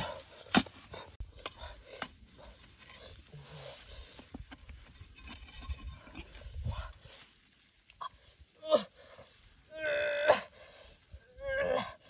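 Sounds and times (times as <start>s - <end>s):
digging tool striking dry earth: 0.0s - 3.0s.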